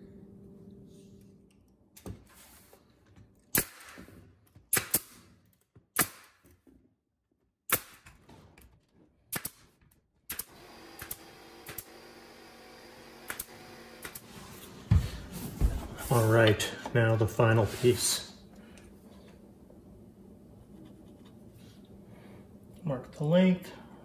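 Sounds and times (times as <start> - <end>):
nail gun firing: 3.5 - 5.3, 5.9 - 6.5, 7.7 - 8.3, 9.3 - 12.1, 13.1 - 14.3.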